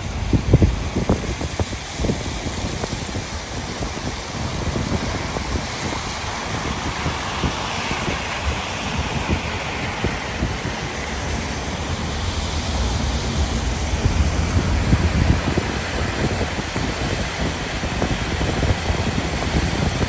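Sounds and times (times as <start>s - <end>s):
low thumps: 0.0s - 2.5s, 11.2s - 17.1s
engine rumble: 0.0s - 20.0s
tyres hissing on wet road: 0.0s - 20.0s.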